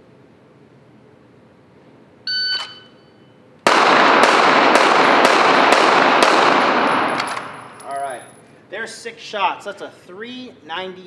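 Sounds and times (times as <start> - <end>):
shot timer beep: 2.3 - 3.4
pistol shots with reverberation: 3.6 - 7.8.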